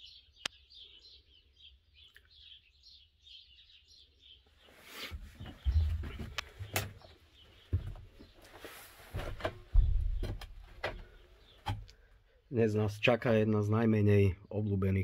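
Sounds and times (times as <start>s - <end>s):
low thuds: 9.1s - 11.9s.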